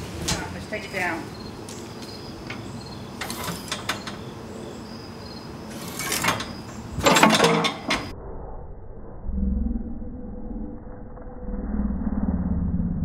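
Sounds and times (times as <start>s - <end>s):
faint cricket chirping: 1.3s - 6.8s.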